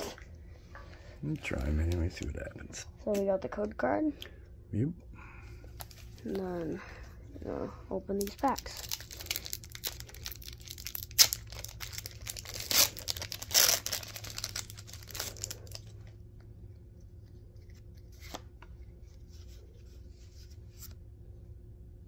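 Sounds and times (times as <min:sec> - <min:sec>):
foil wrapper tearing: 0:08.1 - 0:15.9
cards rustling and clicking: 0:17.0 - 0:21.0.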